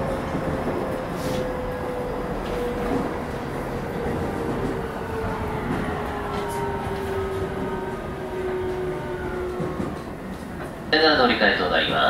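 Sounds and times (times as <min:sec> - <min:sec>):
train motor whine: 0:00.0 - 0:10.8
train wheels rumbling on rail: 0:00.0 - 0:12.0.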